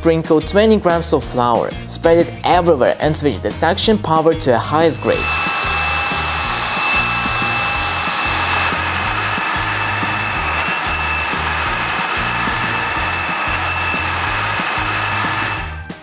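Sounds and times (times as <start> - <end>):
background music with bass line: 0.0 - 16.0
vacuum cleaner running: 5.0 - 15.9.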